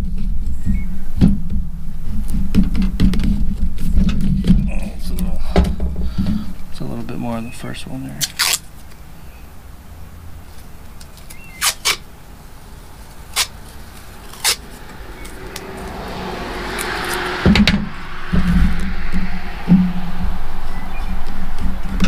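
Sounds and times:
car going by: 9.1 - 10.5, 12.1 - 22.0.

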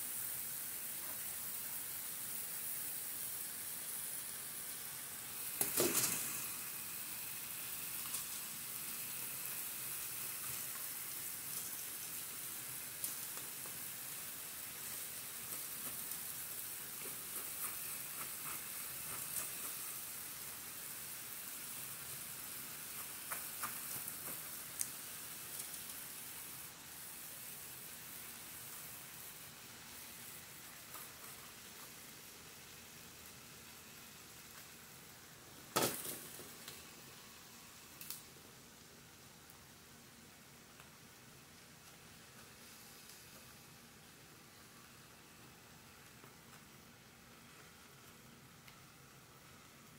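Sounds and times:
vegetables sizzling in skillet: 0.0 - 49.9.

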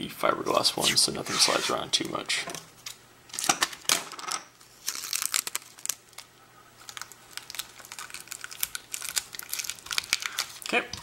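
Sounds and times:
tape crackling: 4.6 - 11.0.

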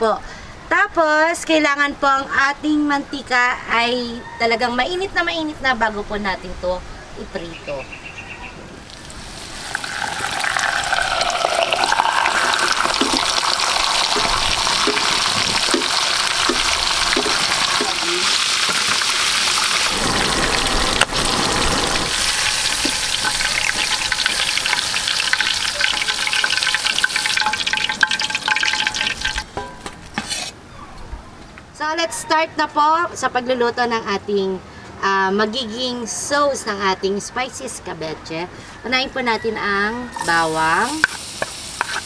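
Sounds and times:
fish deep-frying in oil: 8.9 - 29.6, 40.2 - 42.0.

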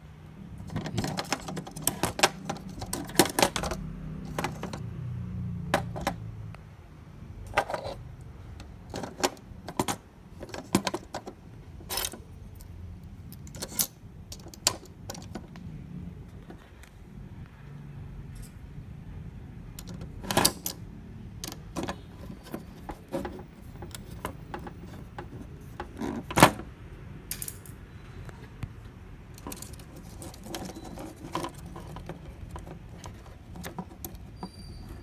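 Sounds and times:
plastic clicks and clatter: 0.6 - 4.9, 8.6 - 11.4, 29.4 - 35.0.

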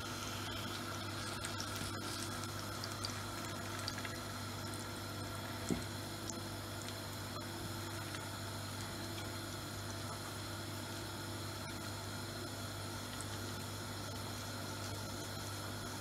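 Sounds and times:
steady low hum: 0.0 - 16.0
patty sizzling in oil: 0.1 - 6.1.

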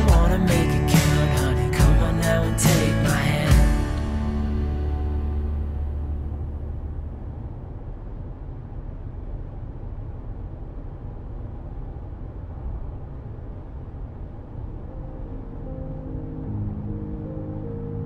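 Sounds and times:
background music: 0.0 - 7.0, 14.8 - 18.0
car engine rumble from inside: 0.0 - 17.9.

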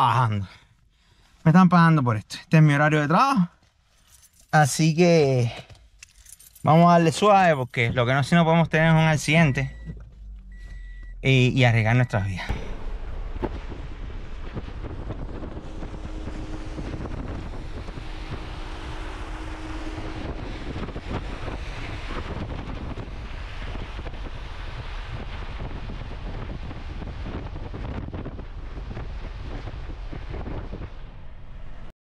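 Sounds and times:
tyres on wet road: 9.5 - 31.9
wind noise: 12.4 - 31.9.

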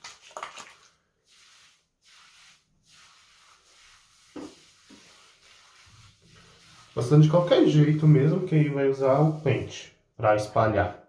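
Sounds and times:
hands rubbing wet hair: 0.0 - 10.0.

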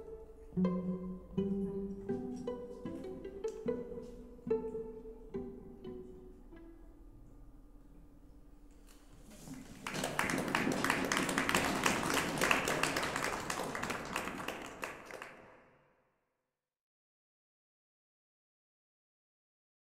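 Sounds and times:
audience applauding: 9.4 - 15.6.

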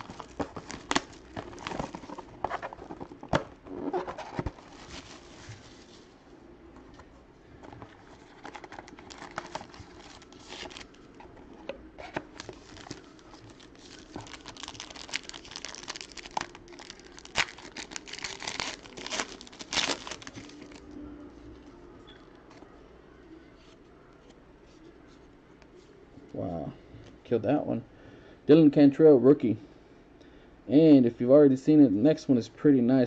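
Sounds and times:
wrapper crinkling and crackling: 0.0 - 6.0, 7.6 - 11.3, 12.0 - 20.9.

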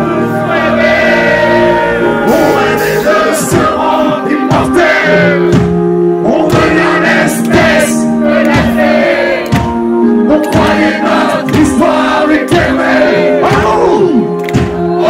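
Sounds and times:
electric guitar chords: 0.0 - 15.0
live metal band playing: 0.0 - 15.0
drums hitting: 2.4 - 7.9, 8.5 - 9.8, 10.5 - 11.8, 12.5 - 13.8
man singing: 6.2 - 7.7, 10.2 - 14.4.

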